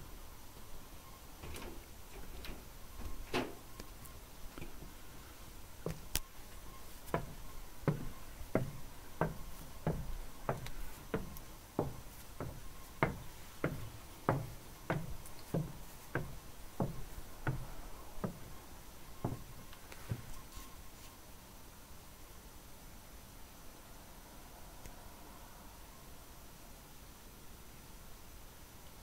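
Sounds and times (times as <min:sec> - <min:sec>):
footsteps on wooden stairs: 0:06.9 - 0:18.6, 0:19.2 - 0:20.4.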